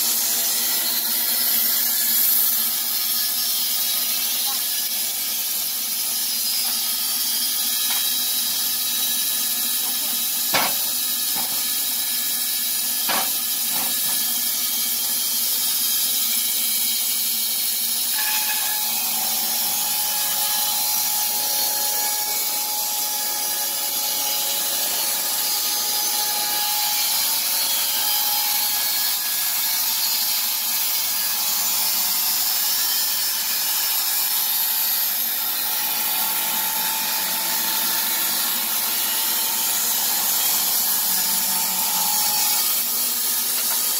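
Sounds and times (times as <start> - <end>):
band saw blade sawing timber: 0.0 - 43.9
sharp knocks: 13.1 - 14.0
steady whine: 18.0 - 29.5.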